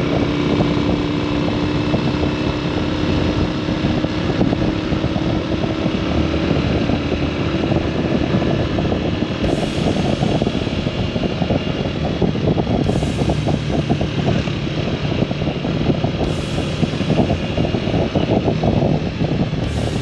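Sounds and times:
fluttering road and riding noise: 0:00.0 - 0:20.0
motorcycle engine: 0:00.0 - 0:20.0.

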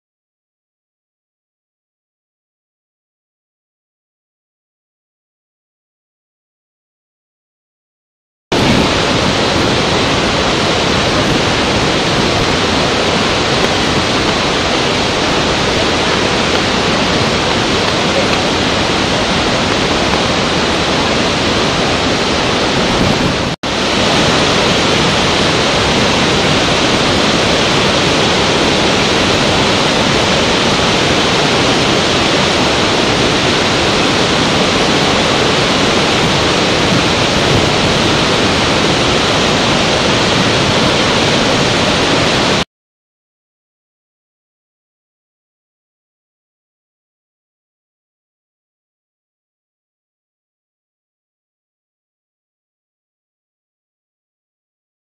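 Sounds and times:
waterfall rushing: 0:08.5 - 0:42.6.

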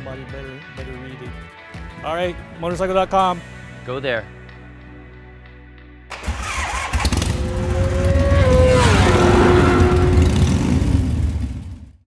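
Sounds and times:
motorcycle engine passing by: 0:06.3 - 0:11.9.

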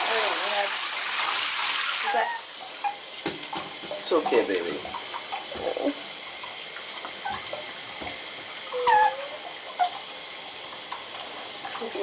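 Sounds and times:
tap water running into bathtub: 0:00.0 - 0:12.0
puppy whimpering: 0:08.7 - 0:09.4.

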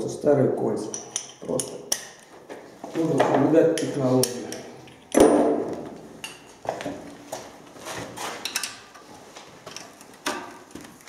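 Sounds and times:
metal sockets clinking: 0:00.9 - 0:02.2, 0:03.8 - 0:05.4, 0:08.4 - 0:08.9
loud metal clank: 0:05.1 - 0:05.7.

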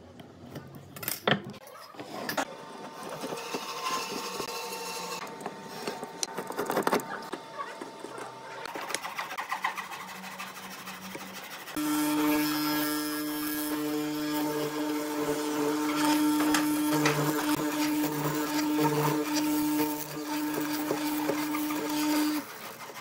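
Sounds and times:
marking gauge scraping wood: 0:08.7 - 0:23.0.

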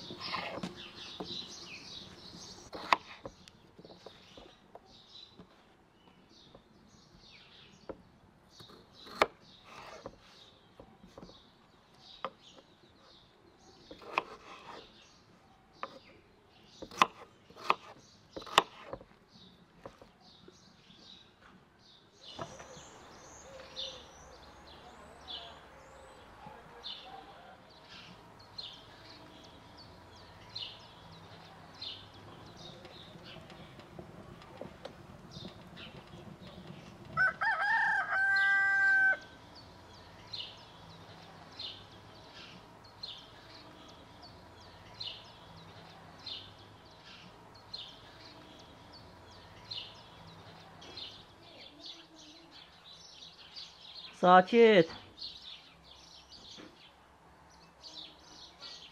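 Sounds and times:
birds chirping: 0:00.0 - 0:58.9
knife chopping on wooden board: 0:02.7 - 0:04.5, 0:08.6 - 0:10.2, 0:13.9 - 0:14.9, 0:15.8 - 0:16.1, 0:16.8 - 0:19.1.

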